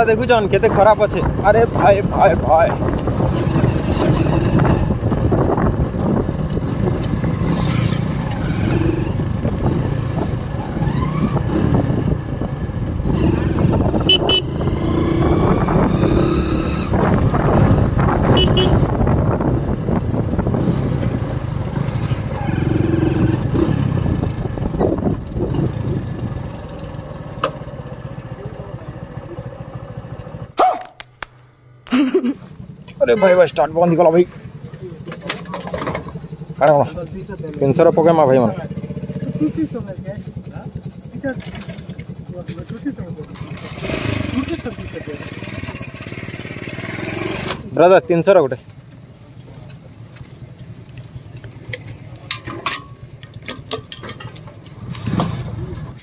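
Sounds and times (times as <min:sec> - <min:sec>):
motorcycle engine running: 0:00.0 - 0:30.6, 0:31.4 - 0:56.0
road and wind noise: 0:00.0 - 0:56.0
horn tooting: 0:13.8 - 0:14.9, 0:18.2 - 0:19.0.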